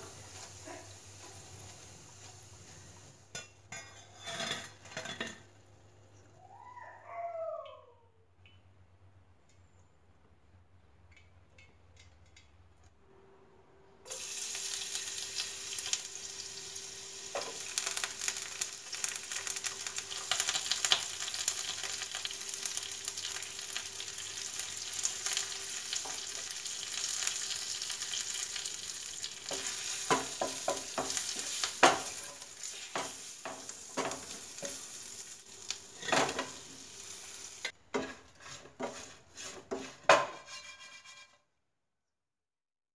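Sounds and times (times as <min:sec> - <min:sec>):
spices sizzling in hot oil: 0:00.0 - 0:04.3, 0:14.1 - 0:37.8
spatula scraping a pan: 0:03.7 - 0:05.2, 0:37.6 - 0:41.5.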